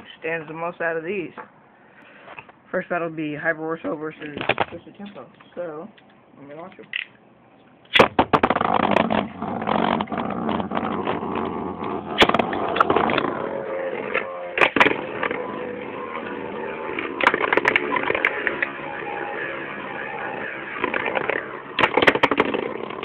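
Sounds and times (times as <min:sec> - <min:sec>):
spinning tops launched: 0:07.9 - 0:23.0
spinning tops whirring and scraping: 0:08.4 - 0:23.0.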